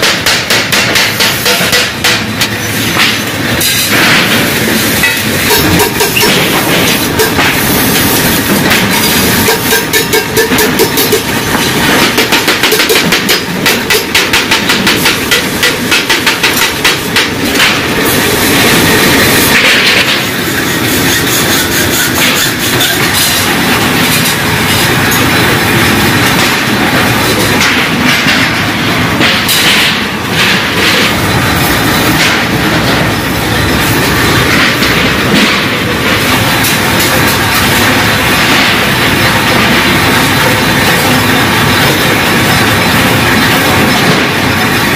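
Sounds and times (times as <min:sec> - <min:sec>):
hammer striking steel sheet: 0:00.0 - 0:18.2, 0:21.4 - 0:40.5
sharp metal hits: 0:00.0 - 0:40.5
steady metallic clatter: 0:00.0 - 0:44.9.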